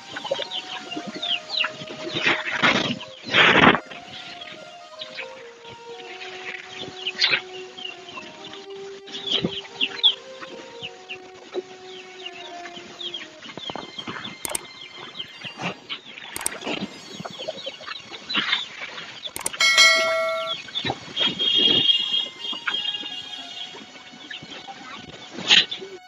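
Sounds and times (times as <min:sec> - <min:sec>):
loud steady pitched tone: 0:19.4 - 0:20.6.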